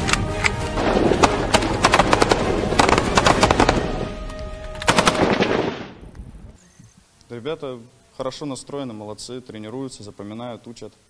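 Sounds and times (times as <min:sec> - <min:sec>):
assault rifles firing: 0:00.8 - 0:04.2, 0:04.8 - 0:06.0.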